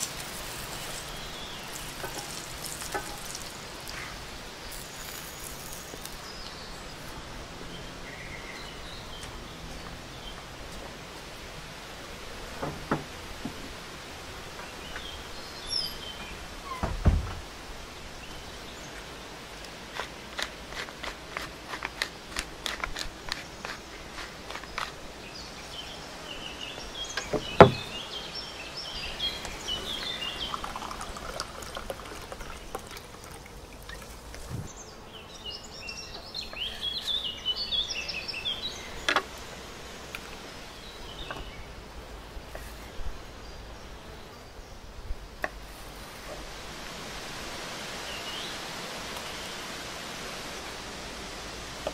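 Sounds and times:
salt sprinkling ticks: 0:00.0 - 0:04.0
songbird chirping: 0:00.0 - 0:10.9, 0:14.5 - 0:19.4, 0:23.3 - 0:44.8
outdoor background noise: 0:00.0 - 0:51.9
low thump: 0:16.8 - 0:17.4, 0:27.3 - 0:27.9.

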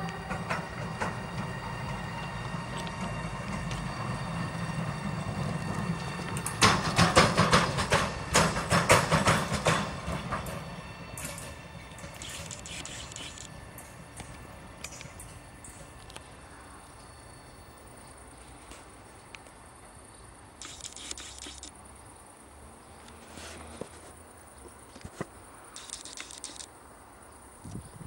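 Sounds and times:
wheels clacking on track: 0:00.0 - 0:16.3
freight train rumbling past: 0:00.0 - 0:20.5.

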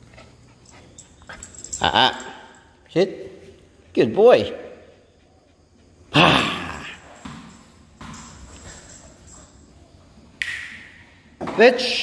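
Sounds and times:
ball bouncing on tiled floor: 0:07.1 - 0:08.9
sharp click: 0:10.4 - 0:11.0.

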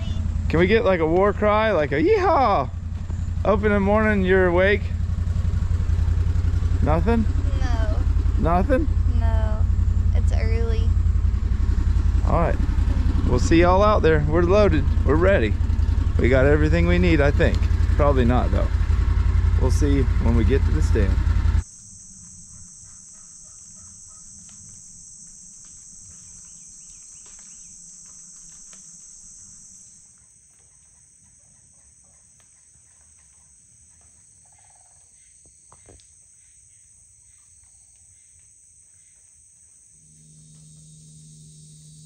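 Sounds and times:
high-pitched insect chorus: 0:19.7 - 0:42.0.

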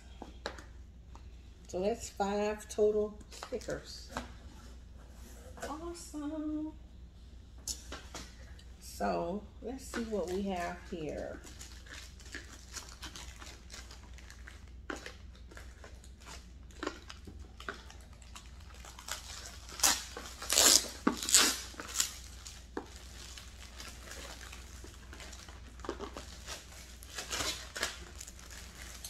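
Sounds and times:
plastic bag crinkling: 0:09.9 - 0:29.0.

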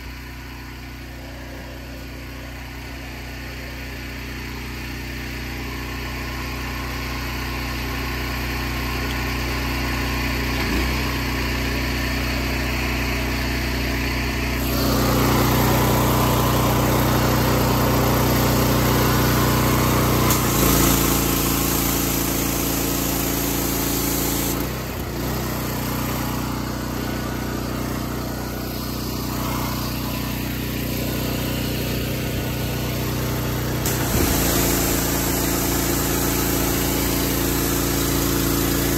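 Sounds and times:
pressure washer engine running: 0:00.0 - 0:38.9
water spray rushing: 0:14.6 - 0:25.2, 0:32.5 - 0:38.9.

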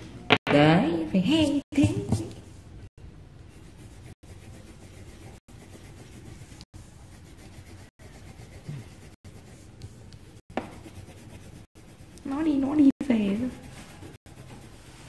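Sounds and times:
pencil scratching on paper: 0:03.5 - 0:15.0.

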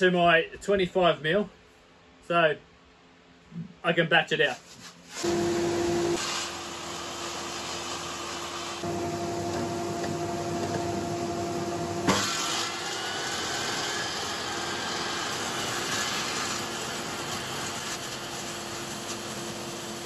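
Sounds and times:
table saw cutting wood: 0:05.2 - 0:20.0
motor hum: 0:05.3 - 0:14.6.

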